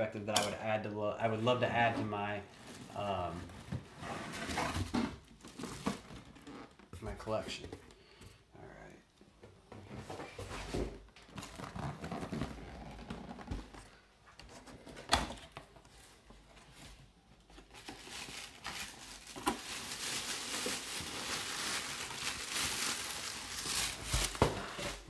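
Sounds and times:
cardboard box rustling: 17.6s - 25.0s.

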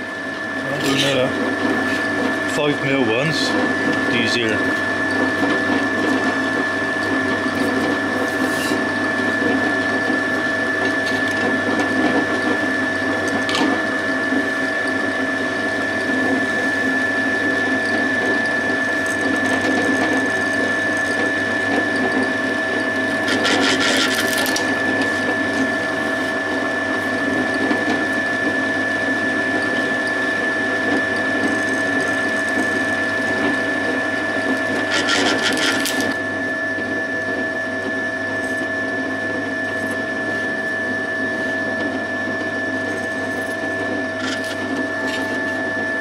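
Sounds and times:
pillar drill whining: 18.1s - 26.5s, 29.6s - 36.4s.

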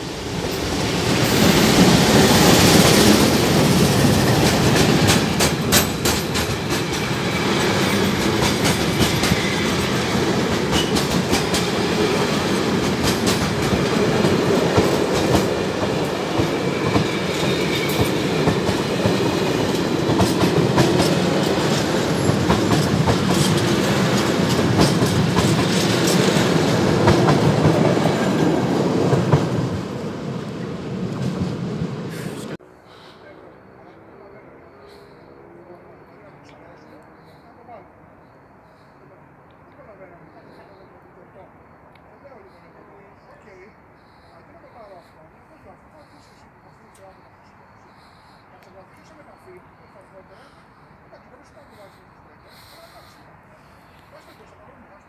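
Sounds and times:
freight train rumbling past: 0.0s - 55.0s
wheels clacking over rail joints: 1.3s - 29.8s.

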